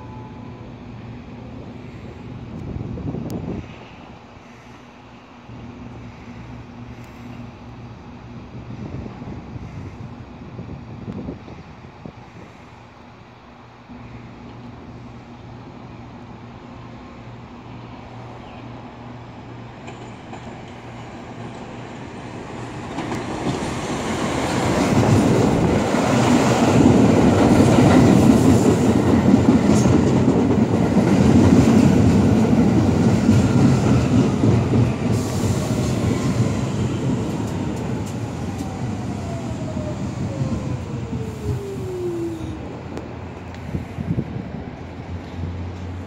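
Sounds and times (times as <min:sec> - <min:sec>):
subway train wheels rumbling: 0:00.0 - 0:46.0
train whine falling in pitch: 0:33.4 - 0:43.0.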